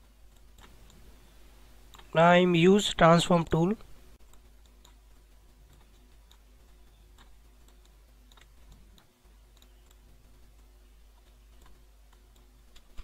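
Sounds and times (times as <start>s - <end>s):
low steady hum: 0.0s - 13.0s
faint computer mouse clicks: 0.3s - 1.0s, 1.9s - 2.1s, 5.7s - 13.0s.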